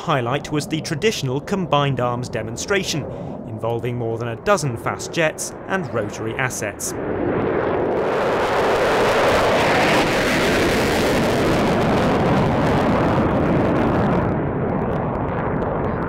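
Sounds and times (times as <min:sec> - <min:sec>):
jet fighter roaring past: 0:00.0 - 0:16.0.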